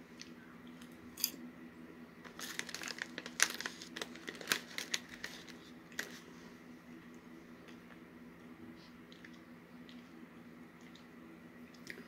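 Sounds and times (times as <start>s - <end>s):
faint steady hum: 0.0s - 12.0s
plastic bag crinkling: 2.2s - 6.3s.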